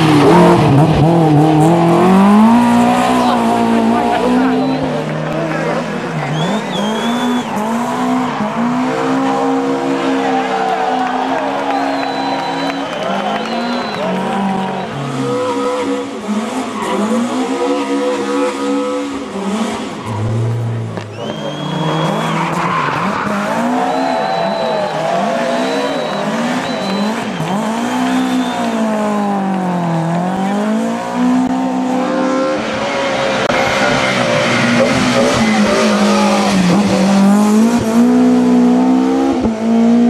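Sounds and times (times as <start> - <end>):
race car engine revving: 0.0 - 40.0
tyres squealing: 21.1 - 28.8.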